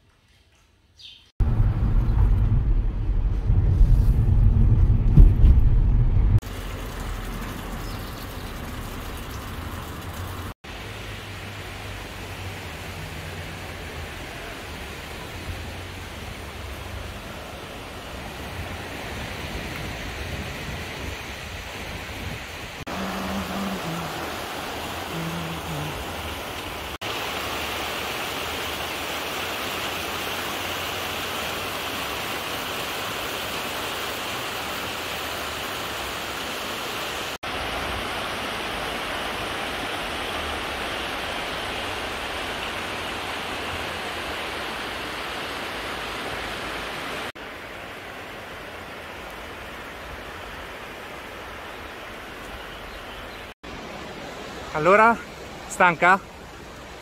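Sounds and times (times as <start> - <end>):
river rushing over rocks: 21.4 - 52.4.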